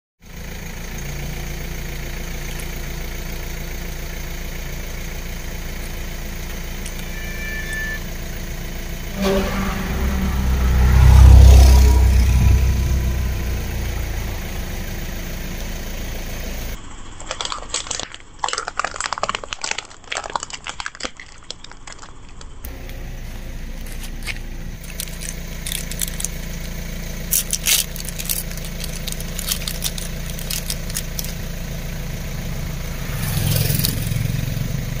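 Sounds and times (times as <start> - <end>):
car engine idling: 0.2 - 17.2, 22.0 - 35.0
low rumble: 2.3 - 16.8, 22.7 - 35.0
objects clicking on asphalt: 17.1 - 23.0, 23.8 - 31.5.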